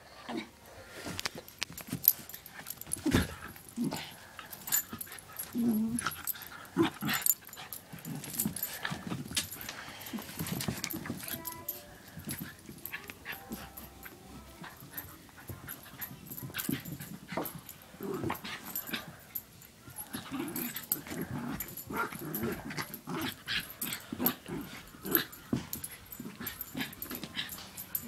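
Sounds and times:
dog growling: 3.0s - 7.3s, 20.1s - 25.5s.

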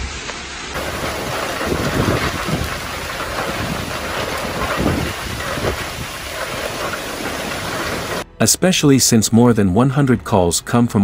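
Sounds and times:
heavy rain drumming: 0.0s - 8.3s
wind buffeting microphone: 0.8s - 8.2s.

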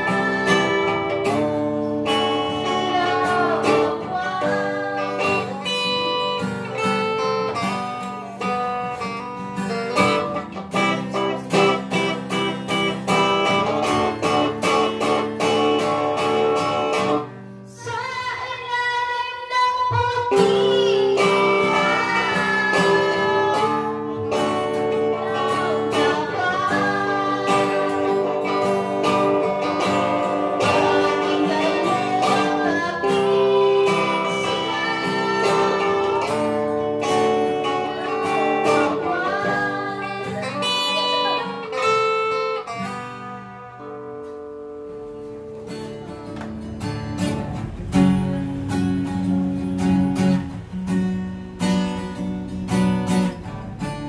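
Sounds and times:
girl singing: 0.0s - 9.1s, 10.0s - 42.9s
acoustic guitar strumming chords: 0.0s - 54.0s
electric guitar: 0.0s - 54.0s.

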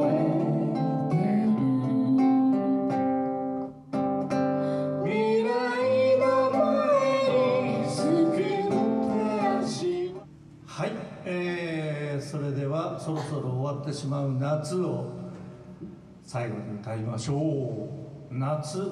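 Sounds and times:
person singing: 0.0s - 3.3s, 5.0s - 10.2s
acoustic guitar strummed and picked: 0.0s - 10.3s.

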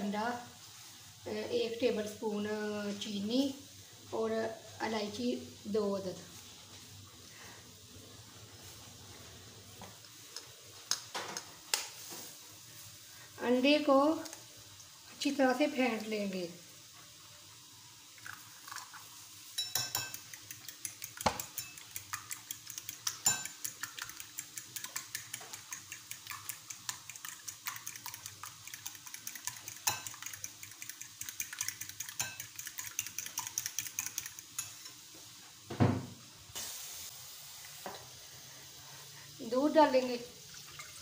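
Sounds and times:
fork beating egg in glass bowl: 19.6s - 35.0s
knock: 35.7s - 36.1s.

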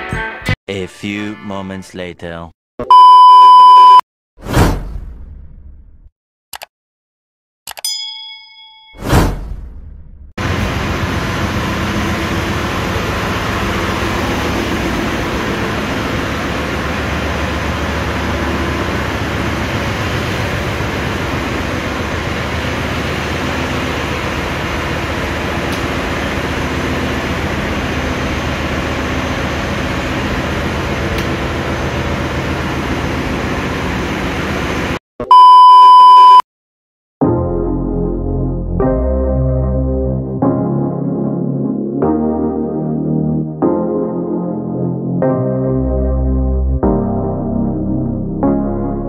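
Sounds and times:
engine room machinery hum: 10.2s - 35.5s.

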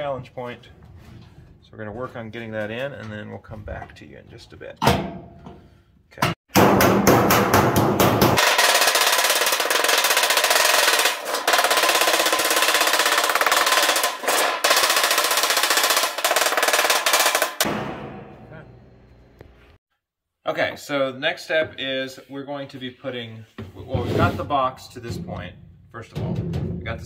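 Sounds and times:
hammer striking sheet metal: 6.2s - 19.0s.

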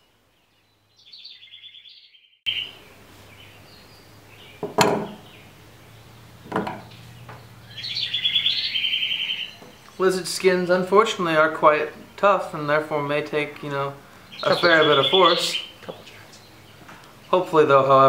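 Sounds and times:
sharp knocks: 4.6s - 5.2s, 6.4s - 7.4s.

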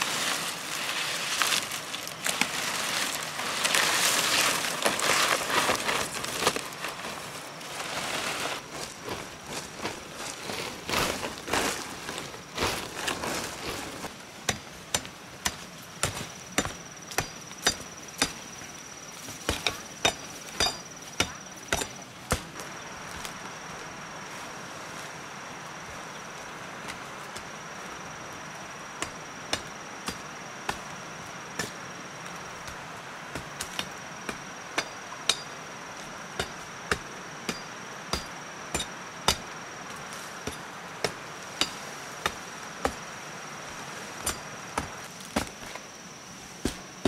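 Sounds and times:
machete chopping stalks: 14.5s - 18.4s, 19.4s - 22.6s, 33.4s - 39.6s, 40.4s - 43.1s, 44.2s - 45.9s, 46.6s - 47.0s.

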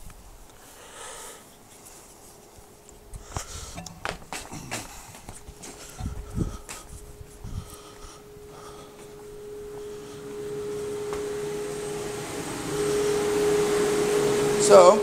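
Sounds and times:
power tool motor humming: 9.4s - 15.0s.

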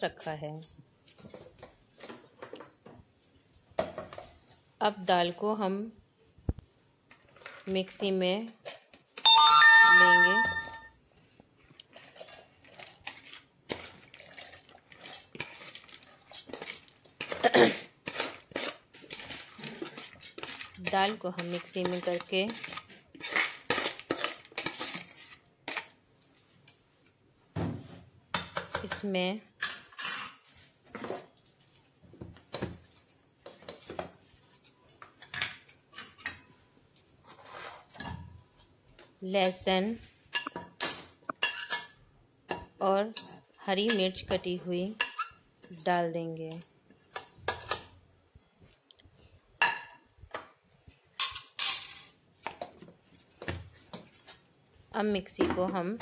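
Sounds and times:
spoon and dishes clinking: 9.2s - 10.9s, 40.3s - 44.1s.

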